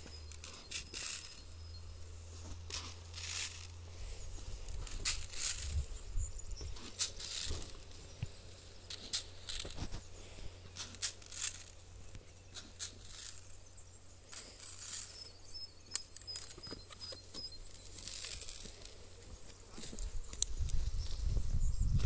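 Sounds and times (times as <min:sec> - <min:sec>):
boot footsteps on loose soil: 0:00.0 - 0:13.4, 0:16.5 - 0:21.5
low steady hum: 0:00.0 - 0:22.0
faint high chirps: 0:12.0 - 0:18.4.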